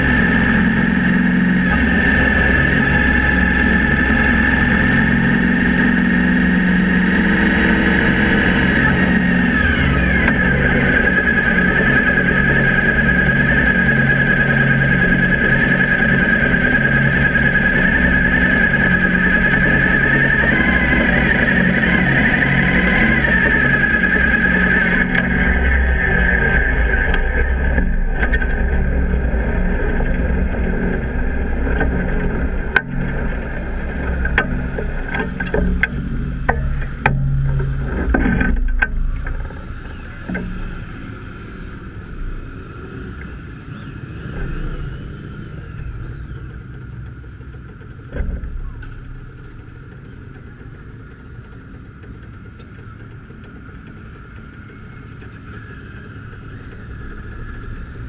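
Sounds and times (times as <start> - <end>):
motorcycle engine running: 0.0 - 58.0
steady background noise: 0.0 - 58.0.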